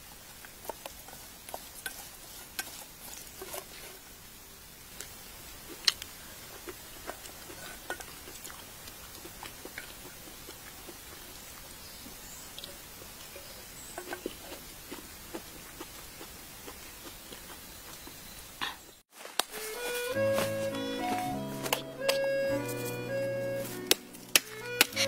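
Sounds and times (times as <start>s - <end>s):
faint sizzle: 0.0s - 20.2s
utensil clicking and scraping in pan: 0.2s - 4.1s, 5.0s - 15.4s, 23.9s - 25.0s.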